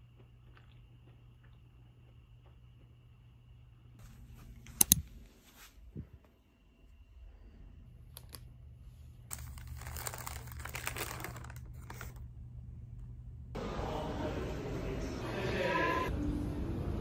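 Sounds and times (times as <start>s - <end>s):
paper wrapper crinkling: 9.3s - 12.3s.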